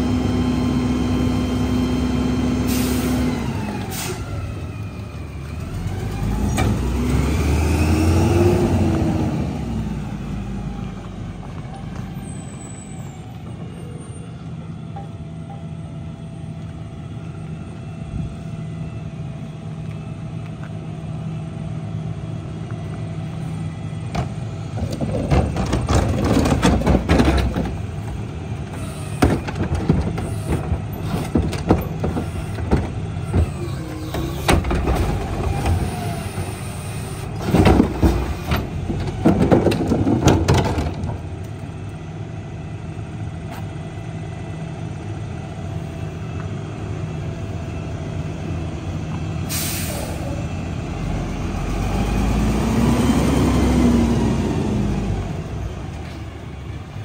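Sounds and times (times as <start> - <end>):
garbage truck engine running: 0.0 - 57.0
trash banging and clattering: 24.1 - 36.1, 37.4 - 41.4.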